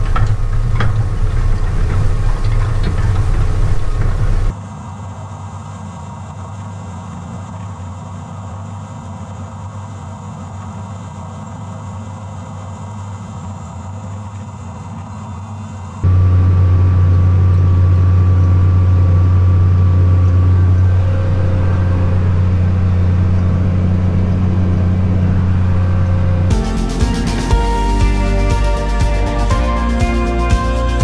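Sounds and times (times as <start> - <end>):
tractor diesel engine running: 0.0 - 4.5, 16.0 - 31.0.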